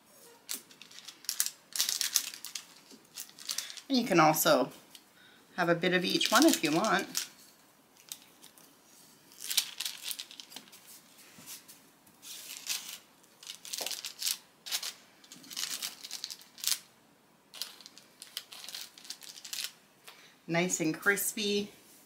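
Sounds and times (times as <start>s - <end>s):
knife crinkling parchment paper: 0.5s - 4.0s, 6.0s - 7.4s, 9.3s - 11.0s, 12.2s - 16.9s, 17.6s - 19.8s.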